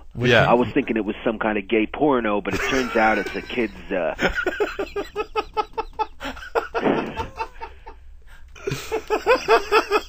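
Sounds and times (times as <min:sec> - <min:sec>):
men laughing: 0:02.5 - 0:10.0.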